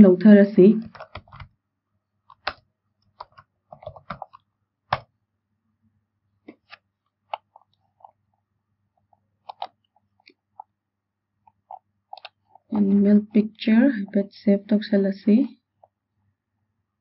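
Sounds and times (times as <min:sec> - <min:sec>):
computer keyboard tapping: 0:00.8 - 0:01.5, 0:02.3 - 0:05.1, 0:09.4 - 0:09.8
mouse clicks: 0:02.3 - 0:05.1, 0:06.5 - 0:07.6, 0:09.4 - 0:10.7.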